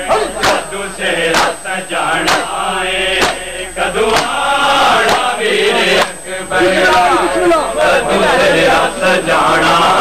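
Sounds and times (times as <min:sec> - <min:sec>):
men chanting a lament: 0:00.0 - 0:10.0.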